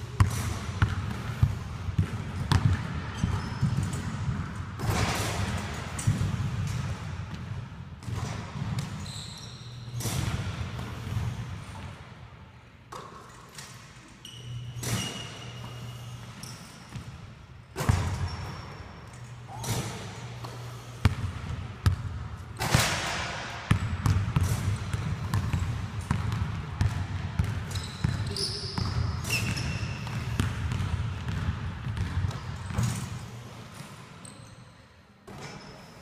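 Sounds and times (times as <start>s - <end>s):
sneaker squeaks: 0.1s - 4.4s, 8.1s - 11.9s, 13.6s - 17.2s, 17.8s - 21.2s, 27.4s - 36.0s
basketballs bouncing on hardwood: 0.2s - 4.5s, 23.7s - 29.0s
ball hitting backboard and rim: 0.2s - 9.0s, 17.8s - 18.5s, 19.6s - 33.1s.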